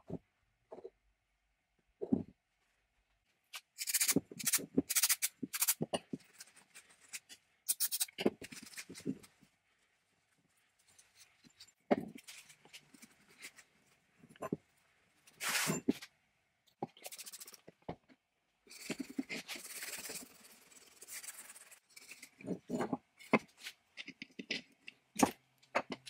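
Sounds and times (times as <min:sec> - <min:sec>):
rag rubbing metal parts: 0:03.8 - 0:05.9, 0:07.1 - 0:08.9.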